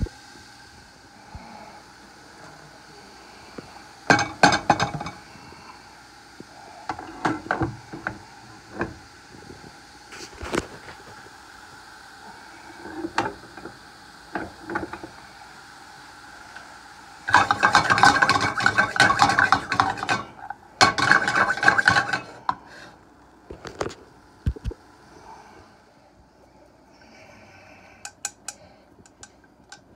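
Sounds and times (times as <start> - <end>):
steady hum: 0.0 - 29.9
utensil scraping frying pan: 4.1 - 5.2, 17.2 - 22.9.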